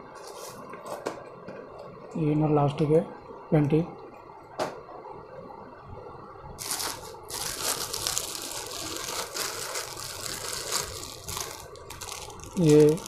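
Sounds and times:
plastic packaging crinkling: 6.6s - 13.0s.

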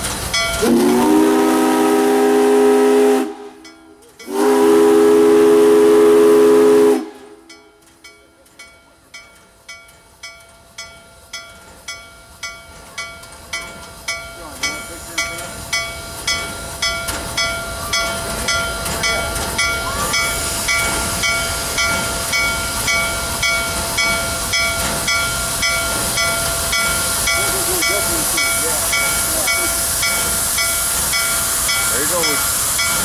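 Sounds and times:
steam hiss: 0.0s - 3.6s, 4.3s - 7.5s, 11.2s - 33.0s
locomotive bell ringing: 0.2s - 1.2s, 3.5s - 4.7s, 7.4s - 33.0s.

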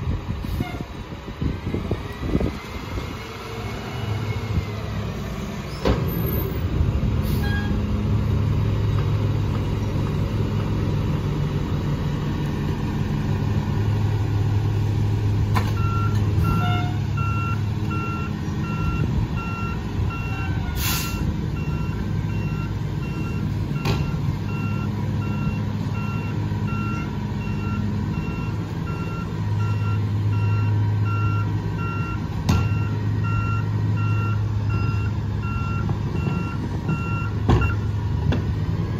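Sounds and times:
garbage truck diesel engine running: 0.0s - 38.9s
reversing alarm beeps: 15.8s - 20.5s, 21.1s - 37.9s
short hiss of air: 20.8s - 21.3s.

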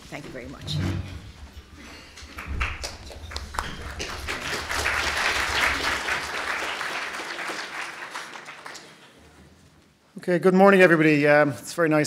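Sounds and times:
audience applauding: 2.2s - 9.4s.

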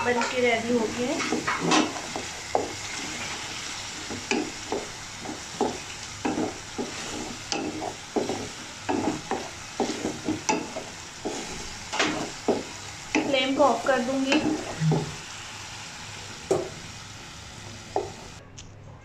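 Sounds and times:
wooden spatula scraping metal pan: 0.0s - 15.2s
sauce sizzling in pan: 0.0s - 18.4s.

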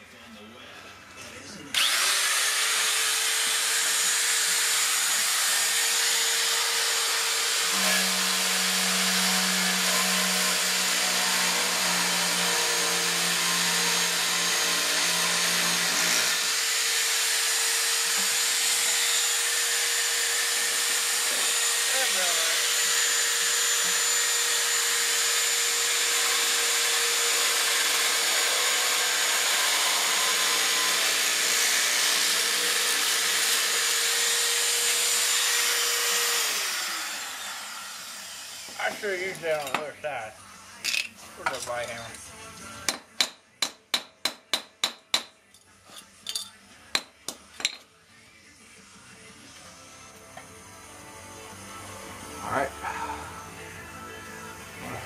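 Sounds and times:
electric metal shear whining: 1.7s - 39.9s.

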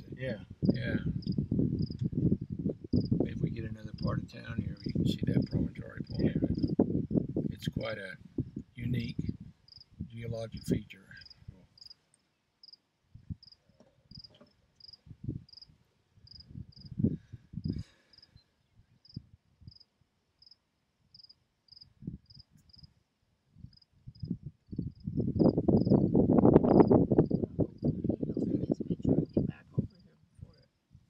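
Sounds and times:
low thumps and rumbles: 0.0s - 10.2s, 24.2s - 30.0s
cricket chirping: 0.6s - 7.6s, 9.2s - 12.0s, 12.6s - 18.3s, 19.0s - 23.0s, 23.7s - 28.0s.

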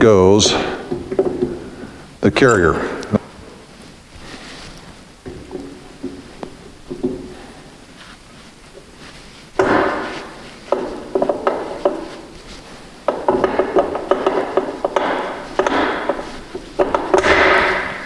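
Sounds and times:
metal clunks and scraping: 13.0s - 18.0s.

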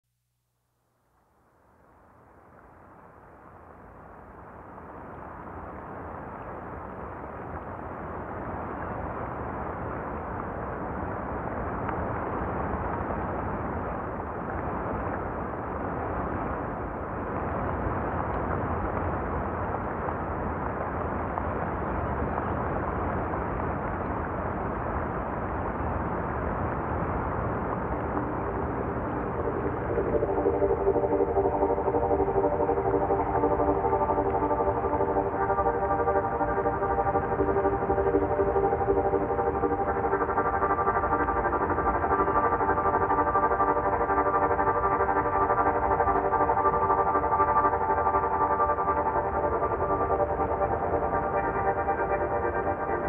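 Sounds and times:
low rumbling drone: 26.8s - 53.0s
held synth chord: 28.1s - 53.0s.

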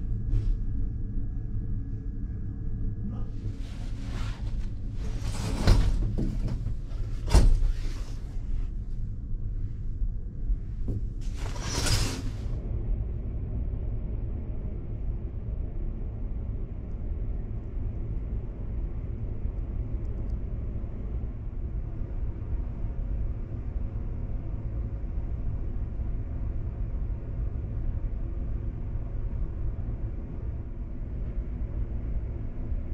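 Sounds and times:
faint even hum: 0.0s - 32.9s
ship machinery rumble: 3.0s - 9.7s.

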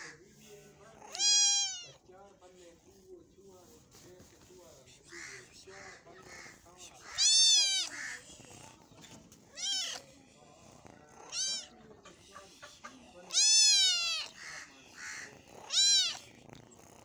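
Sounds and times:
kitten meowing: 1.0s - 2.0s, 7.0s - 8.2s, 9.5s - 10.0s, 11.2s - 11.8s, 13.3s - 14.4s, 15.6s - 16.3s.

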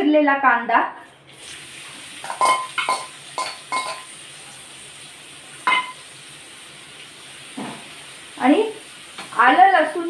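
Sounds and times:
spoon clinking on metal: 2.3s - 4.1s, 5.7s - 6.0s.

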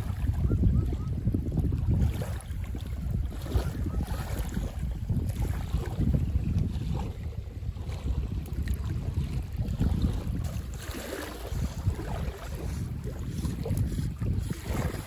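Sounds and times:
small waves lapping: 0.0s - 15.0s
wind buffeting microphone: 0.0s - 15.0s.

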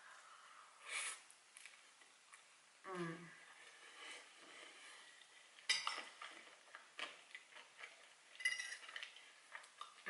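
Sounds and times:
chewing: 3.6s - 10.0s.

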